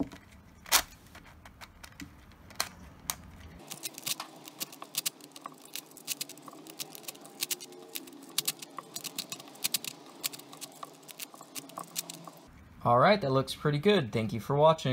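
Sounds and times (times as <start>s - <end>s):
plastic puzzle pieces clicking: 1.5s - 12.5s.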